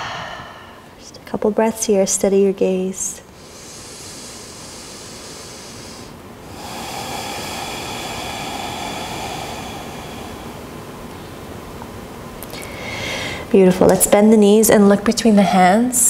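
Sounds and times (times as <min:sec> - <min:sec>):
woman breathing deeply: 0:00.0 - 0:01.0, 0:03.3 - 0:11.8, 0:12.5 - 0:13.5.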